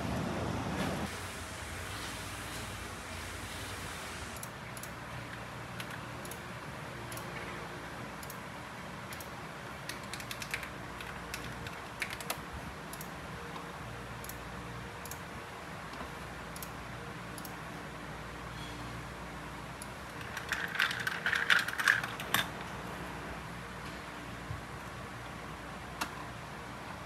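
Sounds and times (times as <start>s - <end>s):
steady background hiss: 0.0s - 20.4s.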